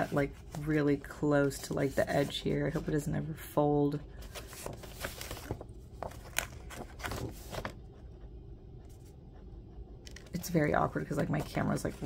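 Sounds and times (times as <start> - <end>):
paper pages rustling: 0.0 - 3.2, 3.9 - 8.0, 10.1 - 12.0.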